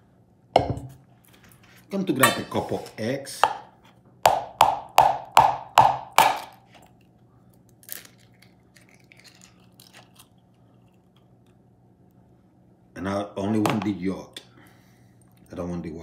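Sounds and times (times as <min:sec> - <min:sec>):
low steady hum: 0:00.0 - 0:16.0
egg rapping on bowl rim: 0:03.4 - 0:06.5.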